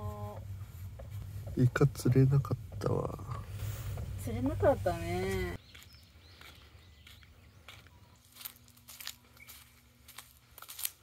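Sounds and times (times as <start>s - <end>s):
woman's voice: 0.0s - 0.4s, 4.2s - 5.6s
faint low hum: 0.0s - 11.0s.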